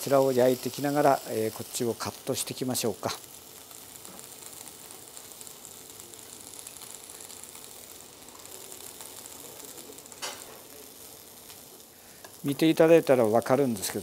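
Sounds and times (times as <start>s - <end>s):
frying pan sizzling: 0.0s - 14.0s.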